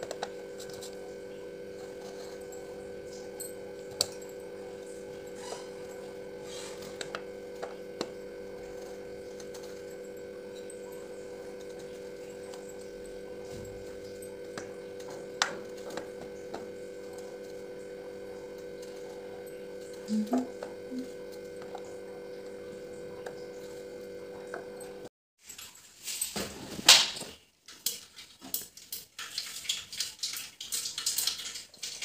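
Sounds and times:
electrical hum: 0.0 - 25.1.

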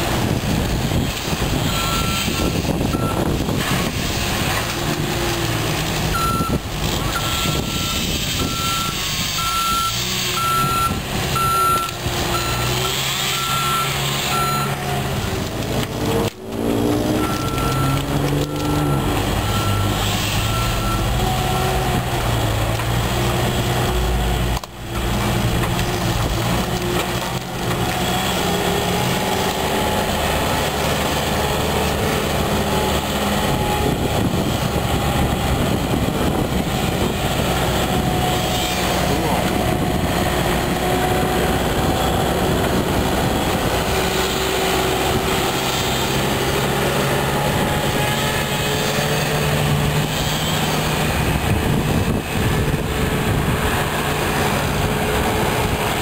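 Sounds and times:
diesel engine running under load: 0.0 - 56.0
reversing alarm beeps: 1.7 - 3.2, 6.1 - 14.8, 17.1 - 18.0, 18.8 - 21.8.

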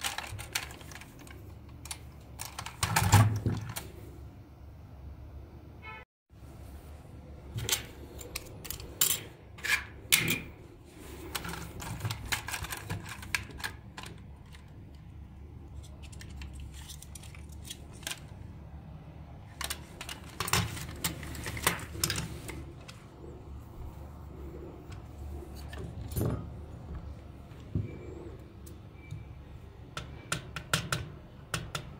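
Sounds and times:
plastic toy parts clicking and snapping: 0.0 - 3.9, 11.3 - 15.1, 15.8 - 18.4.

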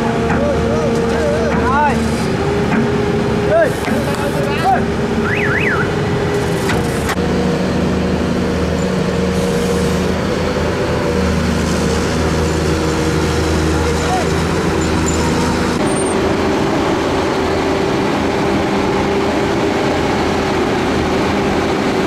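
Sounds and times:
excavator engines droning: 0.0 - 22.0.

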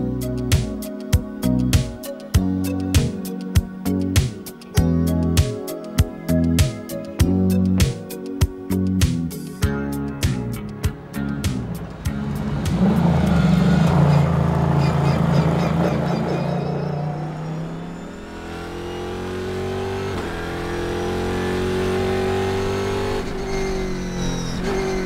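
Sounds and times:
race car engines running: 10.9 - 25.0
race car accelerating hard: 11.6 - 25.0.

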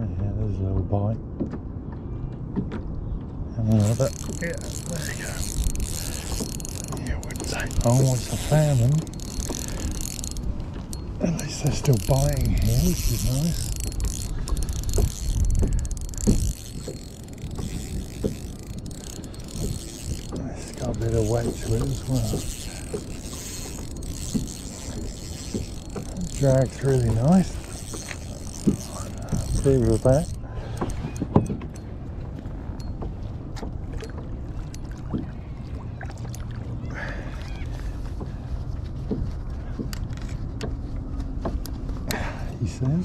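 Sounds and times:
wind rumble on microphone: 0.0 - 36.9
water lapping against kayak hull: 0.8 - 43.0
fishing reel ticking: 3.7 - 31.8.

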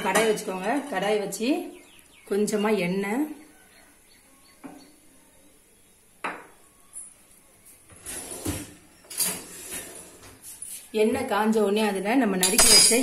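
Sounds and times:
kitchen knocks and clatter: 12.4 - 13.0.

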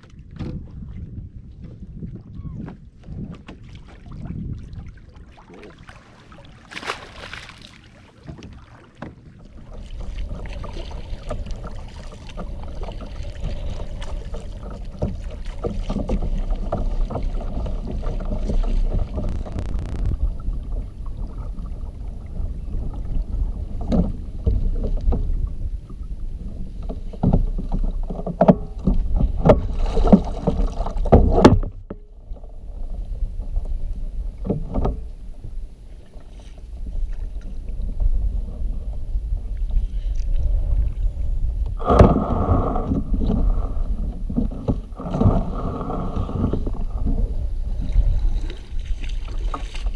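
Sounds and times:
water splashing against kayak hull: 0.0 - 49.9
low rumble: 16.5 - 26.8, 32.1 - 48.9
knocks on hull: 26.8 - 32.0, 41.8 - 43.4.

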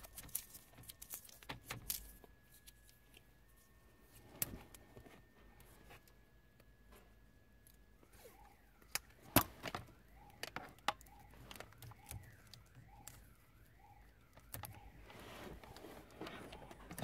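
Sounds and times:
alarm siren wailing low: 3.3 - 17.0.

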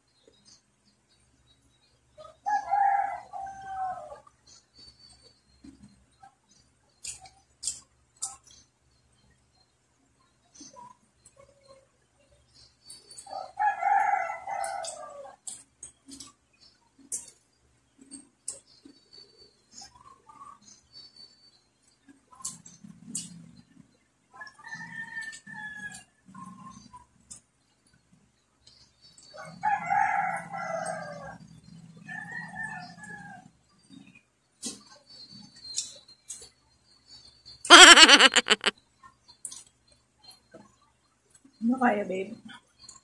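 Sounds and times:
rooster crowing: 37.7 - 38.7.

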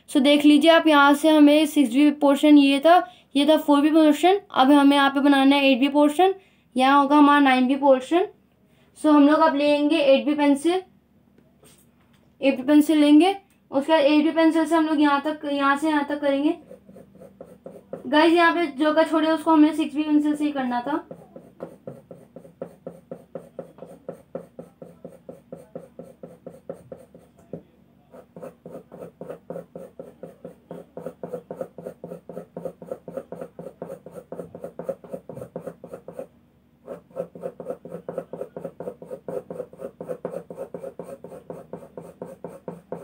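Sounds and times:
pencil scratching on paper: 16.4 - 18.4, 20.8 - 43.0.

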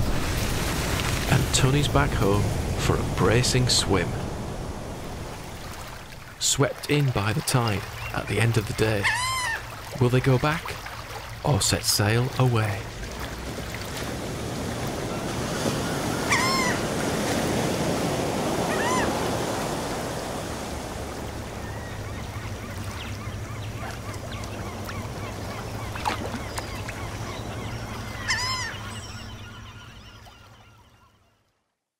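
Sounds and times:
sea waves washing: 0.0 - 30.5
short bird calls: 21.6 - 31.2.

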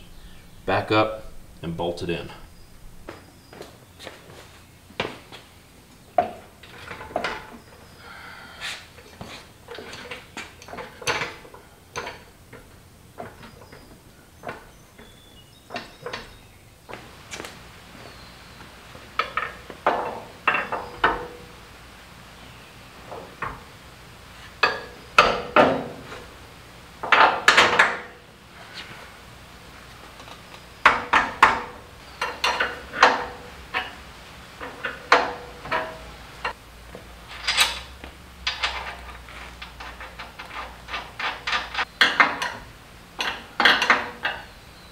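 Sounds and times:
metal clanking and knocking: 19.2 - 21.5, 24.6 - 26.2, 30.8 - 34.0, 34.6 - 36.6, 37.3 - 44.5.

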